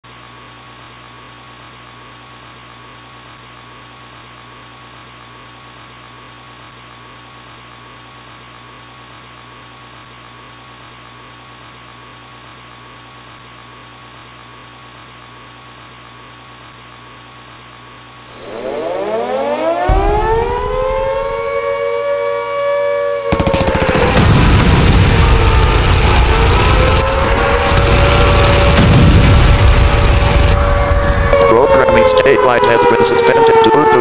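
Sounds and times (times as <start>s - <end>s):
electrical mains hum: 0.1s - 25.8s.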